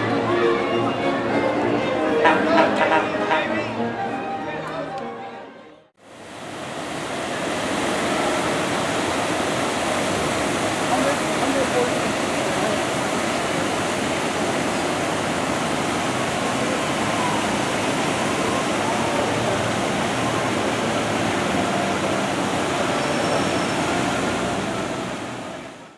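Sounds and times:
water rushing and splashing: 6.0s - 25.9s.

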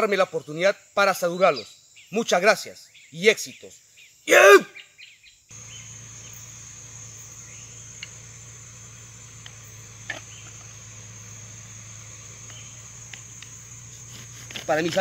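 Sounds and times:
insect chirring: 0.0s - 15.0s
low hum: 5.5s - 14.6s
faint clicks: 7.9s - 8.2s, 9.4s - 10.7s, 12.4s - 13.6s.

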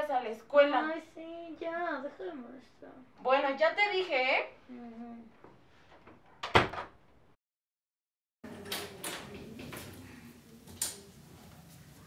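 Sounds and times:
door opening knocks and clicks: 6.4s - 7.0s.

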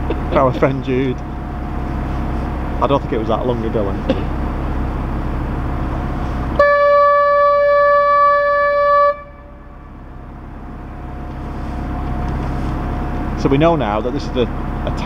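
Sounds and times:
boat engine running: 0.0s - 15.0s
boat horn blast: 6.6s - 9.9s.

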